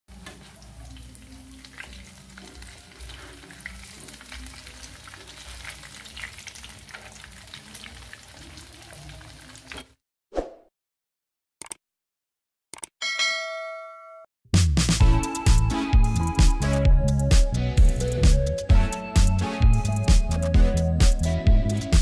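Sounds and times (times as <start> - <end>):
fritters frying in hot oil: 0.1 - 9.8.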